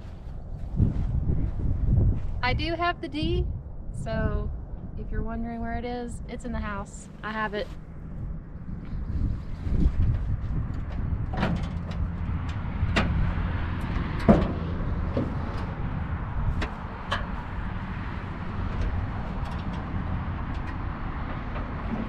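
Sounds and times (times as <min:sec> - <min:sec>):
steady low rumble: 0:00.0 - 0:22.0
metal hood clicks and clunks: 0:10.7 - 0:15.8, 0:16.4 - 0:22.0.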